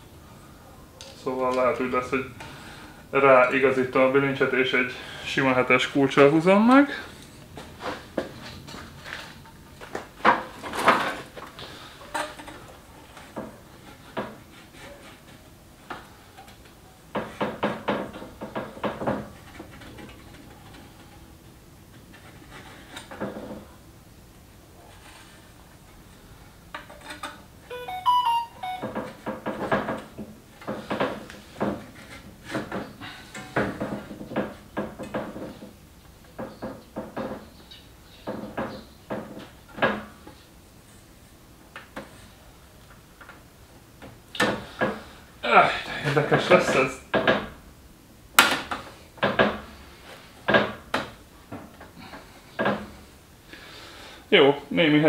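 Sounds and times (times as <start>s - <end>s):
knocks and clatter of parts: 7.6s - 21.2s, 28.6s - 37.6s
knocks and clunks of pipes: 17.1s - 20.3s, 28.7s - 37.5s, 38.2s - 40.2s, 47.1s - 47.6s, 48.4s - 49.7s, 50.5s - 53.0s
electronic beeps: 27.7s - 28.9s.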